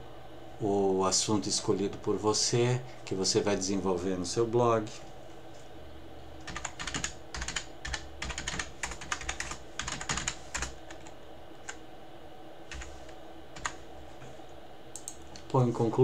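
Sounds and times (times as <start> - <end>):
computer keyboard typing: 6.4 - 11.8, 12.7 - 13.8.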